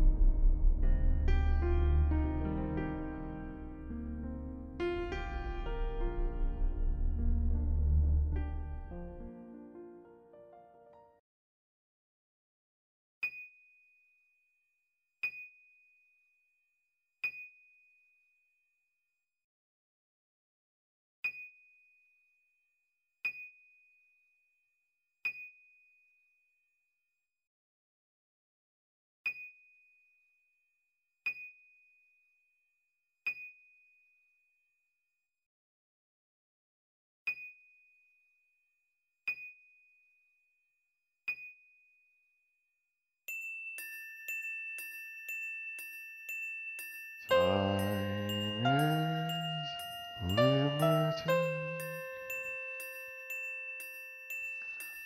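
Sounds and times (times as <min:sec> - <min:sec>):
high bell-like chime: 0:04.9 - 0:07.2, 0:43.3 - 0:55.0.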